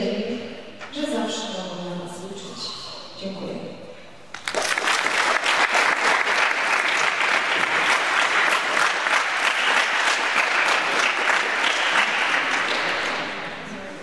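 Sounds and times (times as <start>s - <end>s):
audience applauding: 4.3s - 13.6s.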